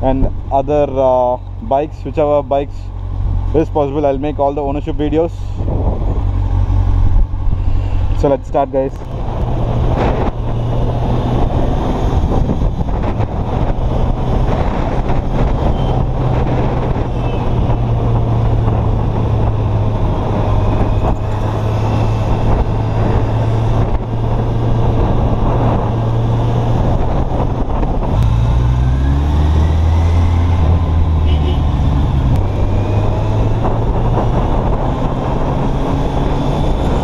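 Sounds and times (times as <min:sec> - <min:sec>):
wind rushing over microphone: 0:04.3 - 0:37.0.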